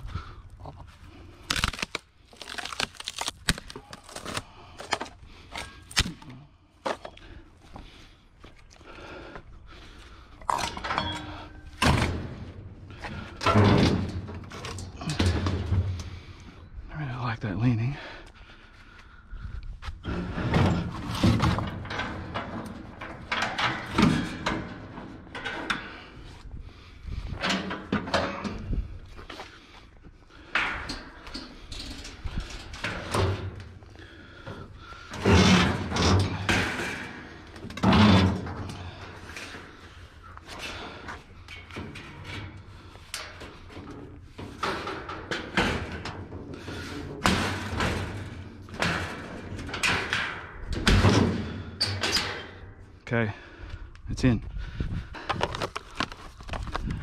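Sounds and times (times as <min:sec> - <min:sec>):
scrap metal knocking and clattering: 0:10.4 - 0:16.3, 0:20.0 - 0:26.2, 0:30.4 - 0:52.8.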